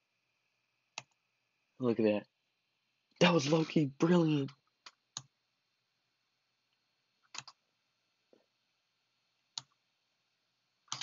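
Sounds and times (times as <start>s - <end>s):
computer mouse clicks: 0.9s - 1.2s, 4.8s - 5.3s, 6.7s - 7.6s, 9.5s - 9.8s.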